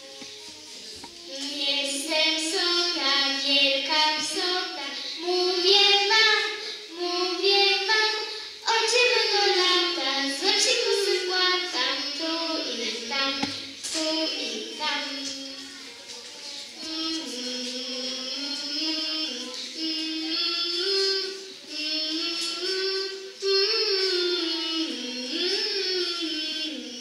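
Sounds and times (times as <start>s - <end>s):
child singing: 0.0s - 27.0s.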